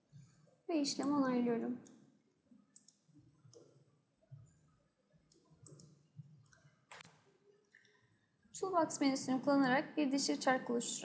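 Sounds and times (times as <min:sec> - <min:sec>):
faint computer mouse clicks: 0:02.8 - 0:03.7, 0:05.3 - 0:08.0.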